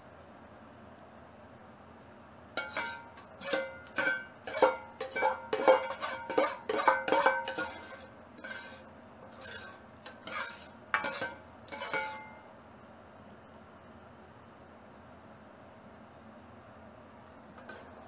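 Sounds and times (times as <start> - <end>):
metal ladle scraping wok: 2.6 - 12.3, 17.6 - 18.0
metallic ring: 2.6 - 12.5.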